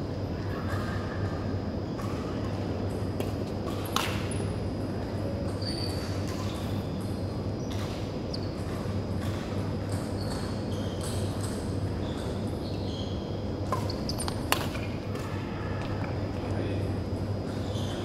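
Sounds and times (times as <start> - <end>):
steady low hum: 0.0 - 18.0
racket hitting shuttlecock: 13.6 - 15.4.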